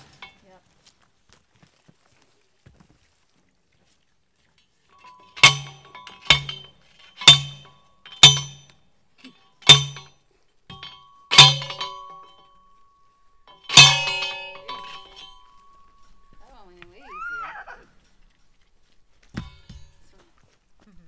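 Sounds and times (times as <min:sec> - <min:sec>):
post driver clanging on metal post: 0:05.0 - 0:16.5.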